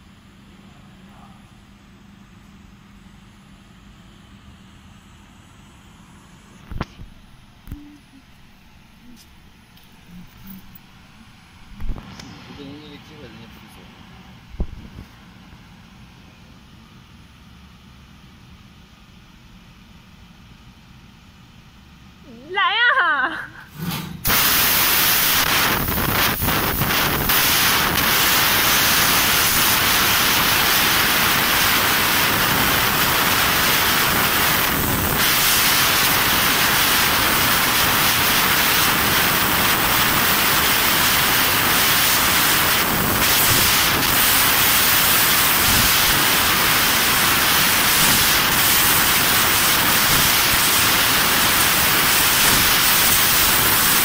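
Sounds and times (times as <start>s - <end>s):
gas hissing from laser cutter: 23.8s - 54.0s.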